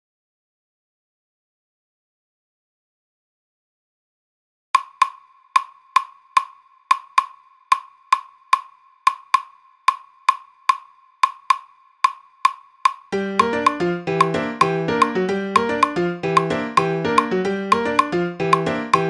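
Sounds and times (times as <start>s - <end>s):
claves clicking rhythm: 4.8s - 19.0s.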